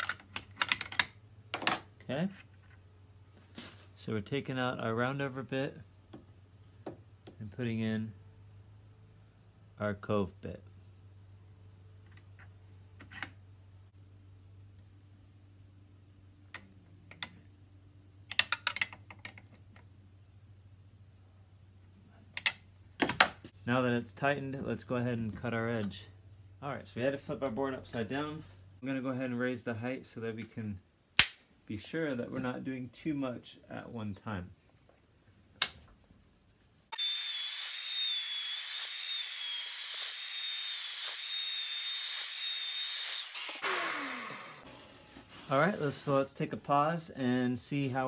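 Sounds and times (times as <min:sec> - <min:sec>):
router whining and cutting wood: 0:36.9 - 0:45.3.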